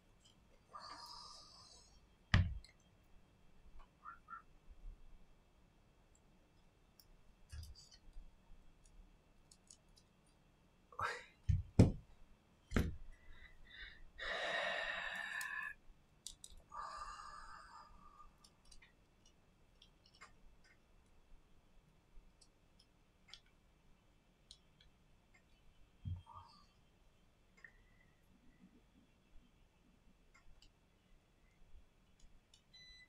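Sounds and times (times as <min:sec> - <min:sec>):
parts knocking on mat: 0:11.5 - 0:12.0.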